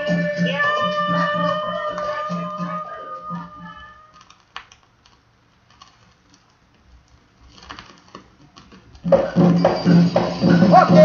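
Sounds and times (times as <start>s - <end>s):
person singing: 0.0s - 4.2s, 9.2s - 11.0s
percussion: 9.0s - 11.0s.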